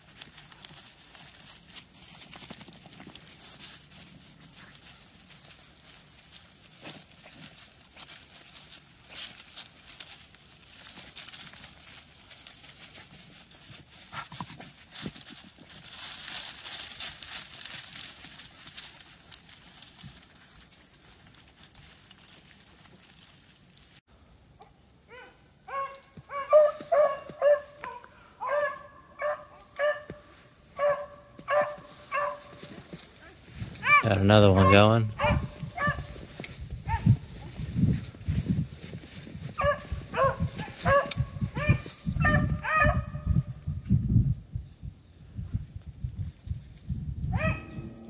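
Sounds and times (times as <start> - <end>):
rustling through snowy brush: 0.0 - 24.0, 29.9 - 42.8
beagles baying: 25.2 - 32.7, 33.8 - 36.2, 39.6 - 43.2.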